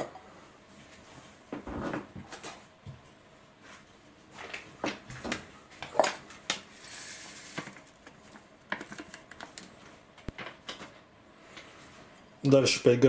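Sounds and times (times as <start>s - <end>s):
kitchen items knocking and clinking: 4.8s - 6.6s.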